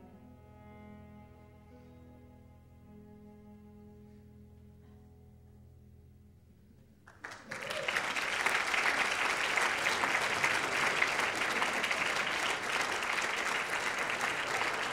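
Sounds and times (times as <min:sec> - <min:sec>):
audience applauding: 0:07.1 - 0:14.9.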